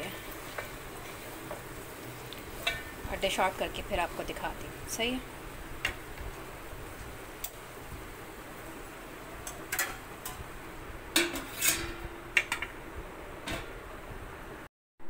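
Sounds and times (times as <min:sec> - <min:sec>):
spoon scraping metal pot: 0:11.2 - 0:12.0.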